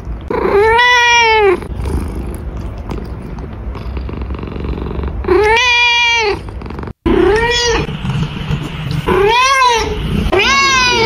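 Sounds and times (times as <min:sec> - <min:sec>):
cat meowing: 0:07.1 - 0:07.9, 0:09.1 - 0:11.0.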